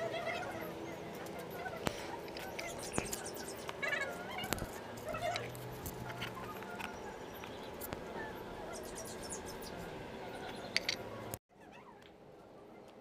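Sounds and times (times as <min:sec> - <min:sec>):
hands handling wiring clicks: 0:10.8 - 0:11.0.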